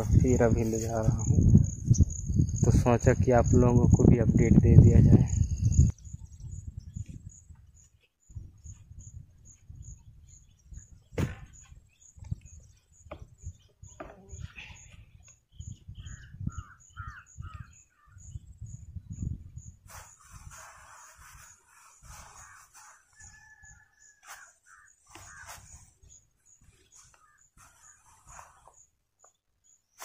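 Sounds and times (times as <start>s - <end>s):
wind rumbling on microphone: 0.0s - 23.9s
insect chirping: 0.0s - 30.0s
crow calling: 16.0s - 18.3s, 24.2s - 25.8s.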